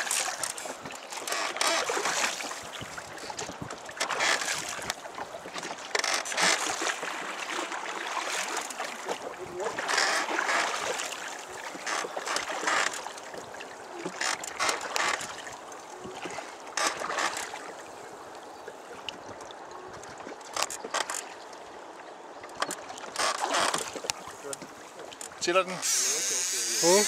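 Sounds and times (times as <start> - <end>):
rush of water: 0.0 - 27.0
wind buffeting microphone: 2.8 - 3.9.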